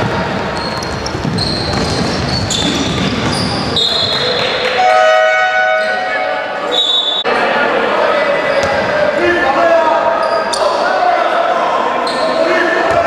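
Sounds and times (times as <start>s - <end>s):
basketball bouncing: 0.0s - 3.8s
spectators' voices: 0.0s - 13.0s
shoe squeaks on hardwood: 0.6s - 4.4s
shrill whistle tone: 3.7s - 7.3s
held horn tone: 4.8s - 6.5s.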